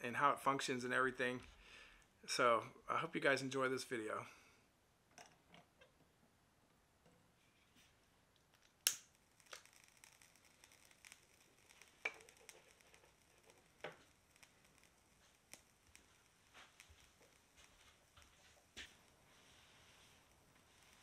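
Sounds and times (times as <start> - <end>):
faint clicks and metallic ticks: 8.3 - 21.0.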